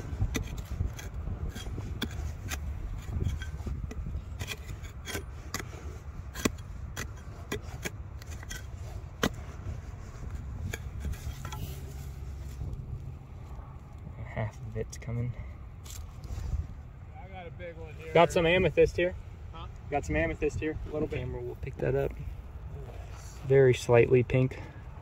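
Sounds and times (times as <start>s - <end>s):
rock pick scraping stone: 0.0s - 12.8s.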